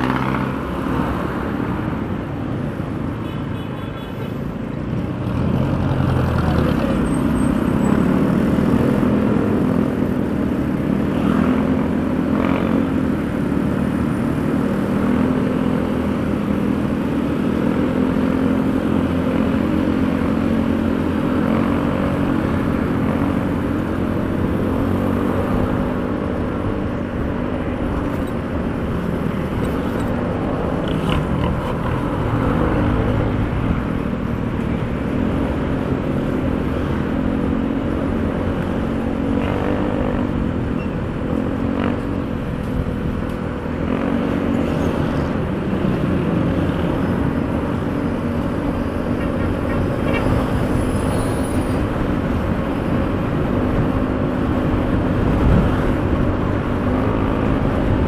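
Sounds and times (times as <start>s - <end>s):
wind and road noise: 0.0s - 58.0s.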